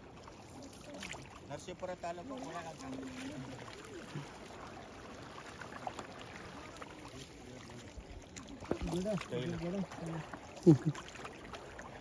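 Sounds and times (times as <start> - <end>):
water lapping against a boat: 0.0 - 12.0.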